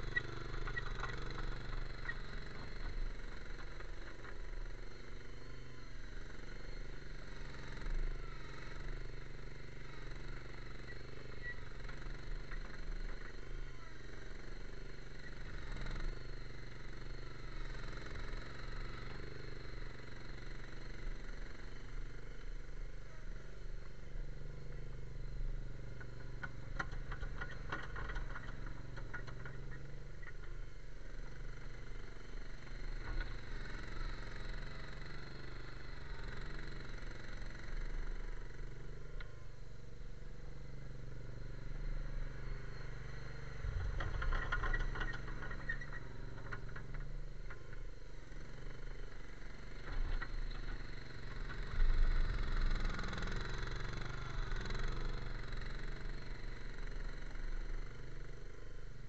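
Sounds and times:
clatter: 0.0s - 59.0s
loader engine running: 40.8s - 57.6s.

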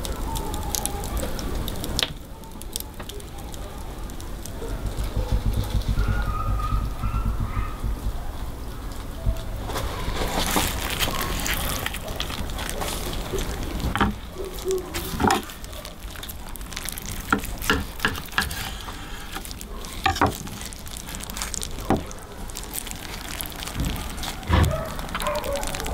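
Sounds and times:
knife crunching through crust: 9.7s - 25.9s.

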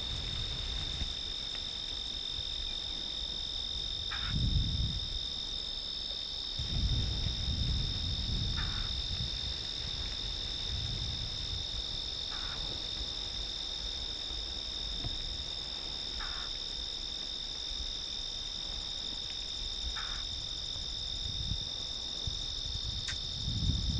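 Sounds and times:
crickets chirping: 0.0s - 23.9s
low rumble: 6.6s - 9.6s.

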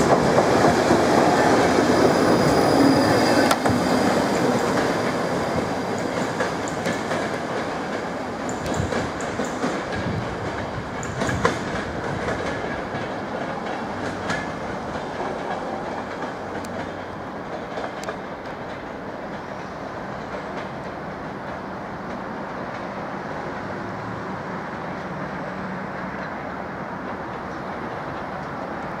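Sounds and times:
train rumble: 0.0s - 29.0s
train wheels clattering over rail joints: 3.5s - 23.0s.

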